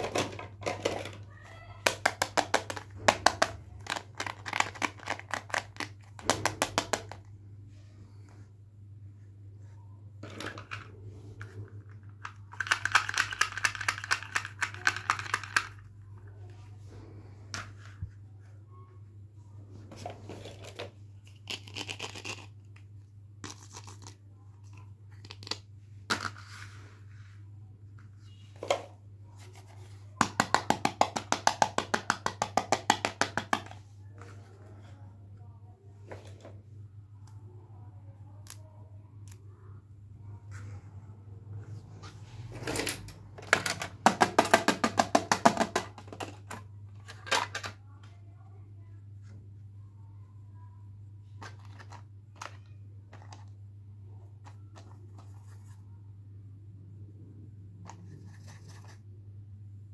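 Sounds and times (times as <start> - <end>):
plastic toy pieces clicking: 12.2 - 15.8.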